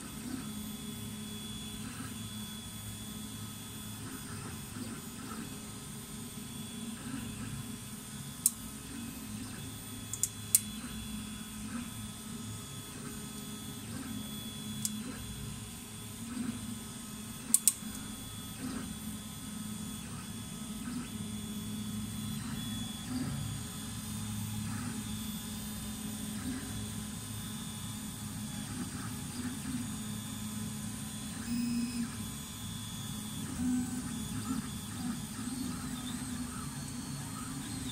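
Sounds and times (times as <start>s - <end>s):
three d printer humming: 0.0s - 37.9s
sharp clicks: 17.5s - 18.0s.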